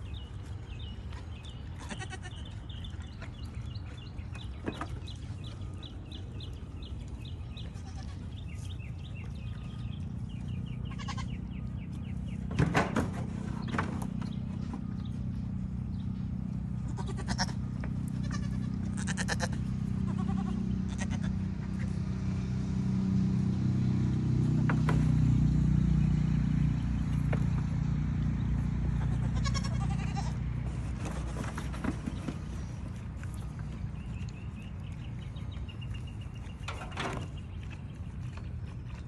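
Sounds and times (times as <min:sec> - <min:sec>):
goats bleating: 0:01.7 - 0:03.4, 0:07.6 - 0:08.4, 0:10.7 - 0:11.4, 0:16.8 - 0:22.0, 0:28.9 - 0:30.6.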